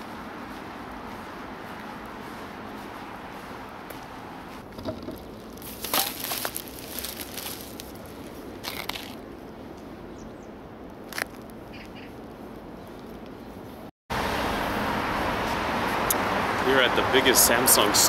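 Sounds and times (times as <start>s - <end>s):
crinkling clicks and rustles: 4.6s - 9.2s.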